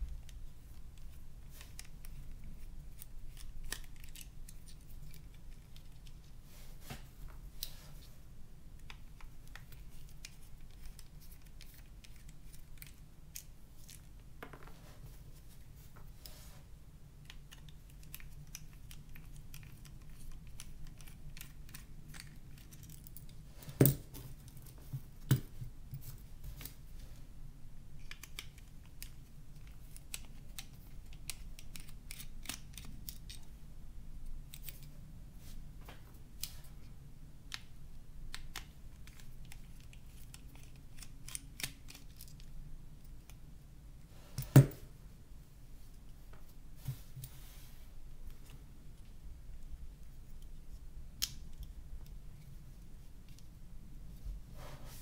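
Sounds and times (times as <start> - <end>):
sharp plastic snaps: 28.0 - 33.5, 37.5 - 42.5, 51.1 - 52.2.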